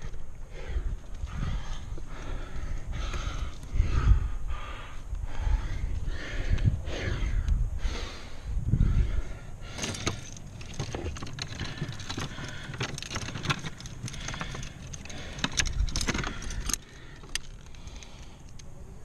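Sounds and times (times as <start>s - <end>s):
low rushing microphone noise: 0.0s - 17.1s
metal climbing gear clinking: 9.6s - 18.7s.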